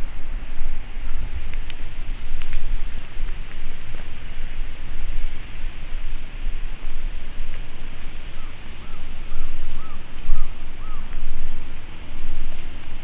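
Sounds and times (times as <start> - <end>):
wind rumbling on microphone: 0.0 - 13.0
bird calling: 6.7 - 13.0.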